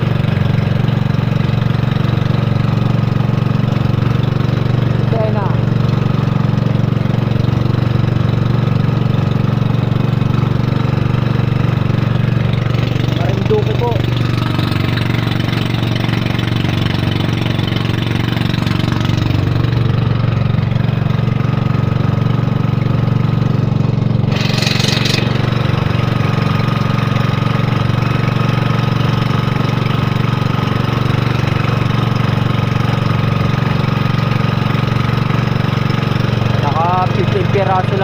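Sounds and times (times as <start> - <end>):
boat engine running: 0.0 - 38.0.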